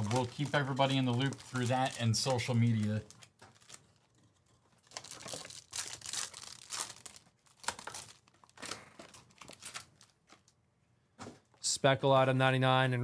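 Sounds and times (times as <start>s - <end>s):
foil packs tearing and crinkling: 0.0s - 4.1s, 4.8s - 10.2s.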